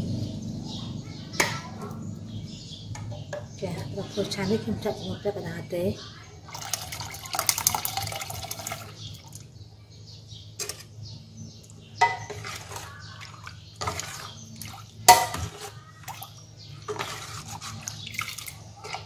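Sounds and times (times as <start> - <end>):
steady low hum: 0.0 - 6.2
milk pouring into pot: 6.5 - 9.4, 12.0 - 19.0
metal ladle scraping pot: 10.6 - 11.0, 12.0 - 19.0.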